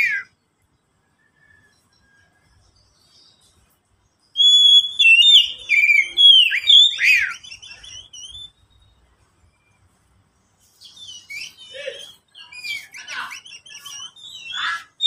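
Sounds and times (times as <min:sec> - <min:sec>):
bird singing whistled phrases: 0:04.4 - 0:08.9, 0:10.9 - 0:15.0.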